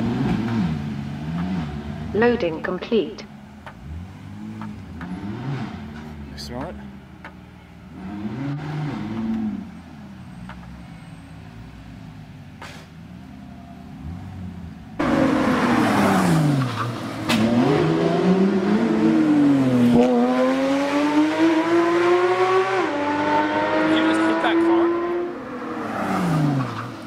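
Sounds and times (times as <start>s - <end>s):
sports car engine revving: 0.0s - 9.8s, 13.9s - 27.0s
tyre squeal: 9.7s - 11.5s.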